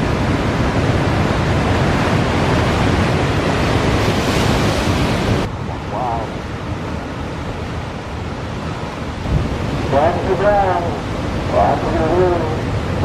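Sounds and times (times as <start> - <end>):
wind on microphone: 0.0 - 10.2
surf waves breaking: 0.0 - 13.0.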